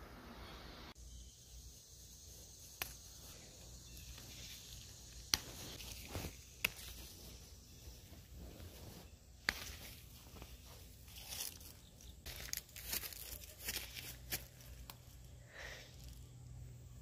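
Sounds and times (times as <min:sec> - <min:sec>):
leaves rustling: 0:01.9 - 0:16.2
herb stems snapping: 0:02.6 - 0:07.2, 0:09.4 - 0:10.5, 0:11.2 - 0:15.2.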